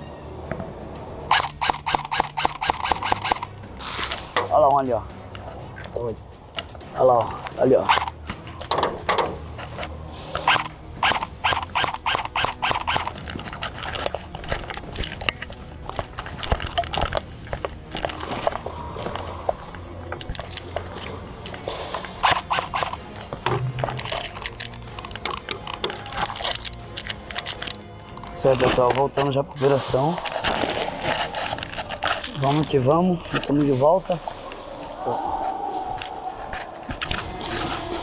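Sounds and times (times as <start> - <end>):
rattling equipment: 1.3 - 34.1
clicks and knocks of gear: 7.4 - 33.7
footsteps on concrete floor: 15.3 - 24.0.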